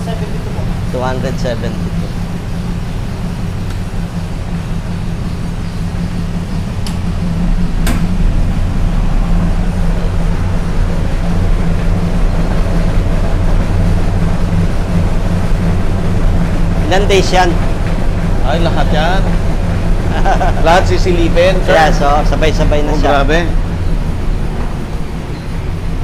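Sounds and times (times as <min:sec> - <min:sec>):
incubator mechanical hum: 0:00.0 - 0:26.0.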